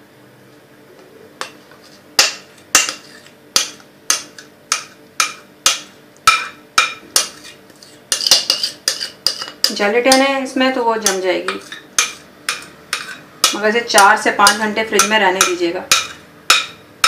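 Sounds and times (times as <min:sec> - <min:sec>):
utensil knocking against mixing bowl: 0:03.6 - 0:07.4, 0:14.4 - 0:16.8.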